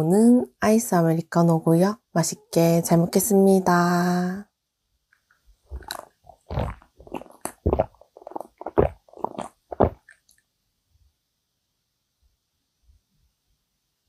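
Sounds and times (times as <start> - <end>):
person gulping a drink: 5.7 - 10.5.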